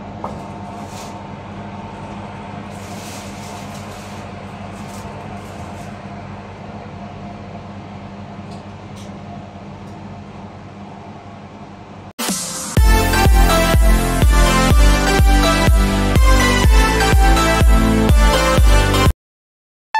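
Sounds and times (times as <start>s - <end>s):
low motor hum: 12.8s - 19.1s.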